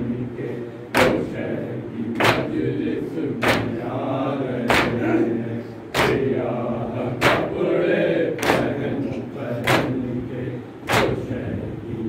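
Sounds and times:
men chanting in unison: 0:00.0 - 0:12.0
chest-beating slaps: 0:02.2 - 0:02.6, 0:03.4 - 0:03.8, 0:04.7 - 0:05.1, 0:05.9 - 0:06.3, 0:07.2 - 0:07.6, 0:08.4 - 0:08.8, 0:10.9 - 0:11.2.

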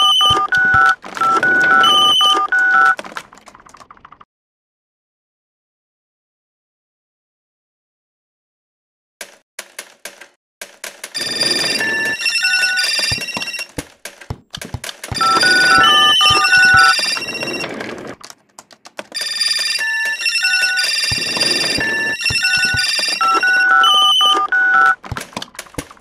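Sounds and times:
electronic telephone ringtone: 0:00.0 - 0:03.0, 0:11.2 - 0:13.7, 0:15.1 - 0:18.0, 0:19.2 - 0:25.0
sharp clicks like keyboard typing: 0:09.2 - 0:11.2, 0:13.0 - 0:17.2.

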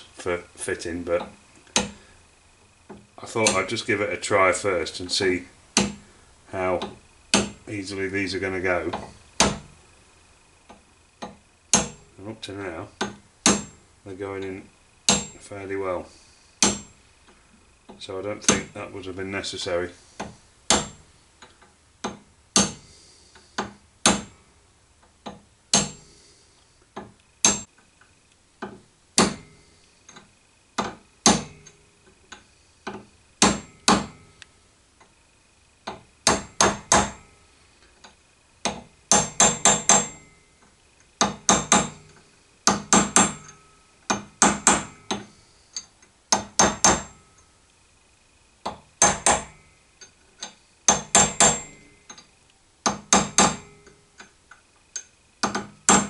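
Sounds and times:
hammer tapping metal drift: 0:06.8 - 0:07.7, 0:10.7 - 0:12.1, 0:13.0 - 0:13.8, 0:15.0 - 0:15.5, 0:16.1 - 0:17.0, 0:20.2 - 0:24.4, 0:25.2 - 0:26.3, 0:27.0 - 0:27.7, 0:28.6 - 0:34.4, 0:35.9 - 0:37.4, 0:38.6 - 0:40.6, 0:41.2 - 0:47.5, 0:48.6 - 0:52.3.

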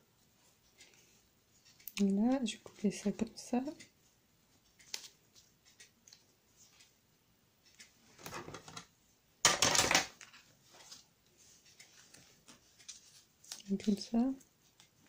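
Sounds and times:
paper rustling: 0:10.2 - 0:15.0.

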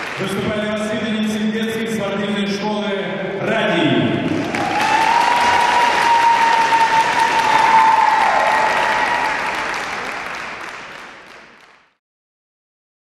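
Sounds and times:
audience applauding: 0:00.0 - 0:00.9, 0:04.2 - 0:12.0.

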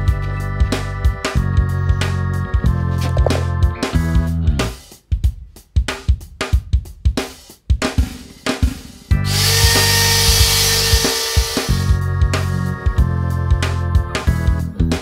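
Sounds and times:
background music with drum beat: 0:00.0 - 0:15.0
electric router whining: 0:09.2 - 0:12.0.

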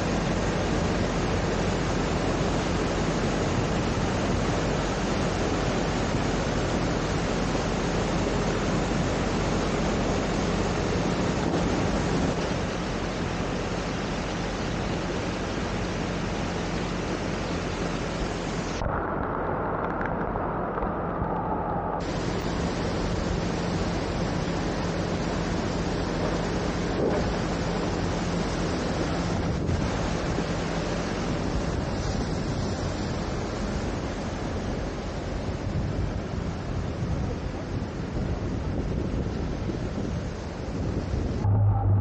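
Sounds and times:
floodwater rushing roar: 0:00.0 - 0:42.0
wind buffeting microphone: 0:00.0 - 0:42.0
low steady hum: 0:40.4 - 0:42.0.

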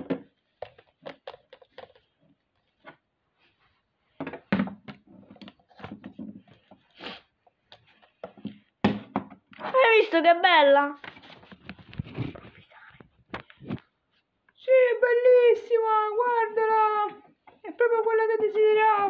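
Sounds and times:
plastic toys knocking and clicking: 0:00.0 - 0:02.1.

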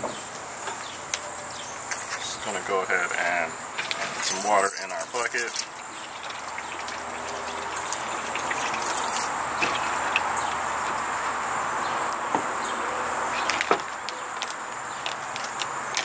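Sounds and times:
water pouring into plastic bucket: 0:04.5 - 0:10.6.

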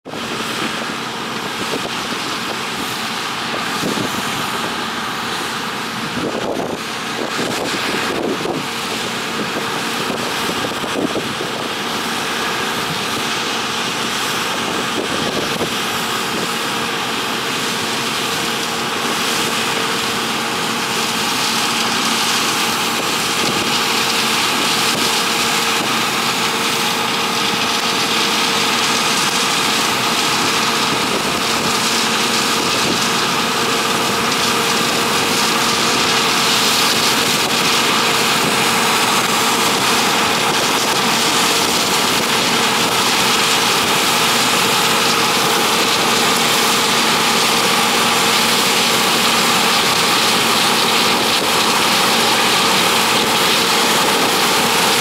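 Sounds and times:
combine harvester running: 0:00.0 - 0:55.0.

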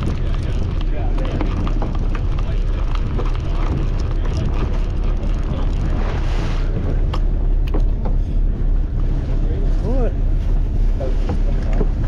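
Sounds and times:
boat engine rumble: 0:00.0 - 0:12.0.

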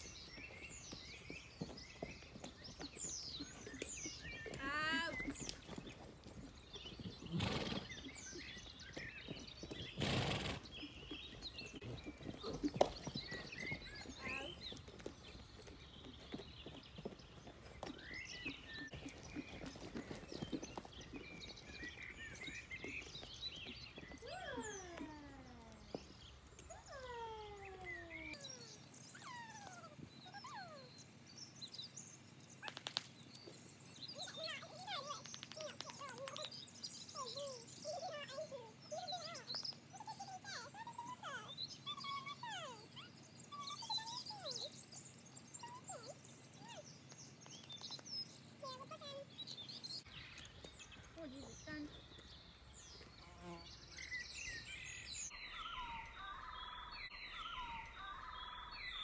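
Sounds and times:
horse hoofbeats on muddy ground: 0:00.0 - 0:24.7
small birds chirping: 0:00.0 - 0:59.0.

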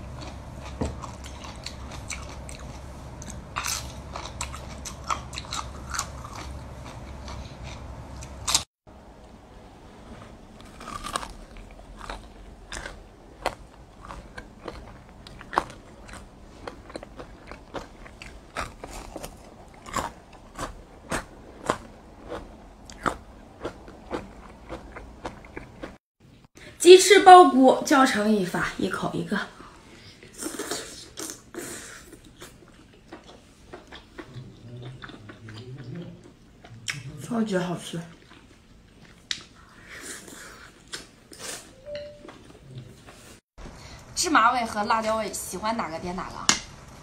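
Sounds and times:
person chewing crunchy food: 0:00.0 - 0:08.7, 0:10.1 - 0:26.0, 0:30.4 - 0:37.1, 0:38.1 - 0:41.7.

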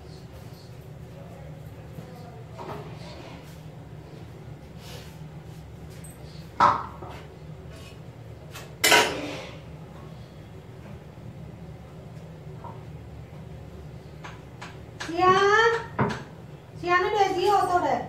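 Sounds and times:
steady low hum: 0:00.0 - 0:18.0
metallic clanks of kitchen utensils: 0:08.8 - 0:09.5.

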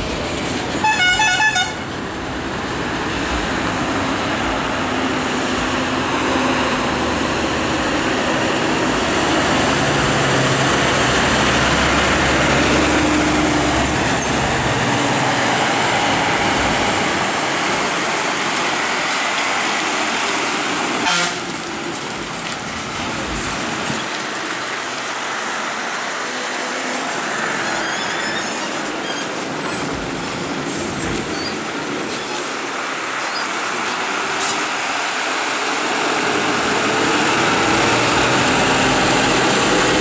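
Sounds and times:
lorry diesel engines labouring: 0:00.0 - 0:40.0
truck horn: 0:00.8 - 0:01.9, 0:21.0 - 0:21.5.

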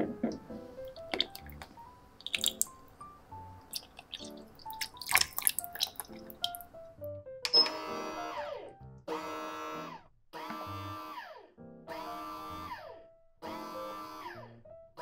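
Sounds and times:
soft background music: 0:00.0 - 0:15.0
liquid pouring and dripping: 0:00.3 - 0:07.1
short beep: 0:07.5 - 0:07.8
bread machine kneading motor: 0:07.7 - 0:14.5.

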